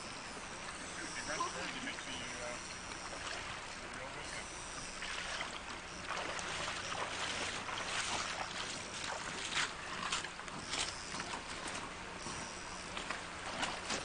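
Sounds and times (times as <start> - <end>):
river water rushing: 5.0 - 12.0.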